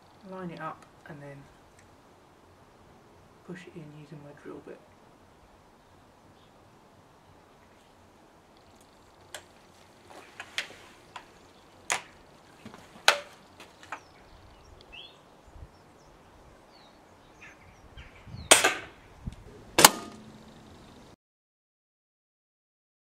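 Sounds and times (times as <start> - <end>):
air rifle shot: 18.4 - 19.0, 19.7 - 20.4.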